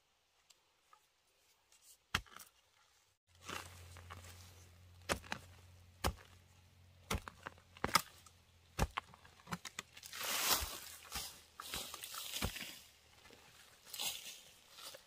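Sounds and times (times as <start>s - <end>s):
blade chopping: 5.0s - 6.4s, 7.0s - 8.2s.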